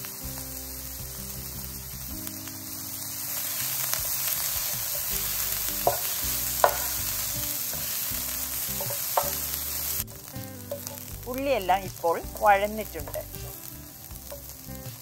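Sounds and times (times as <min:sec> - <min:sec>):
vegetables sizzling in oil: 0:00.0 - 0:15.0
spatula tapping pan: 0:04.9 - 0:09.8, 0:10.4 - 0:11.3, 0:14.2 - 0:14.6.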